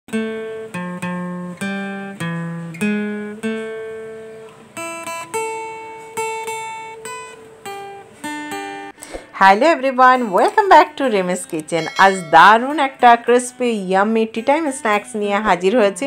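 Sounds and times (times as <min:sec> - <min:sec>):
plucked acoustic guitar melody: 0:00.1 - 0:08.9.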